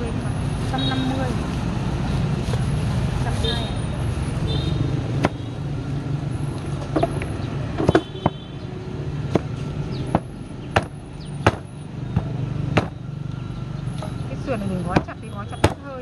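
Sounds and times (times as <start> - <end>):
meat cleaver chopping ribs: 12.7 - 13.0.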